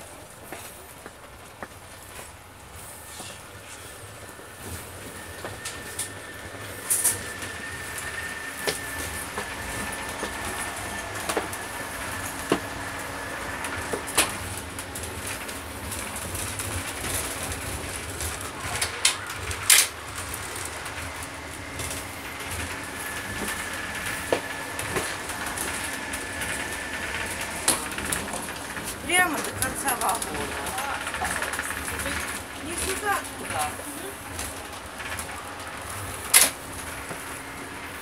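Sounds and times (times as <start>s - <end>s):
train rumble: 0.0s - 38.0s
thin high whine: 3.0s - 14.6s.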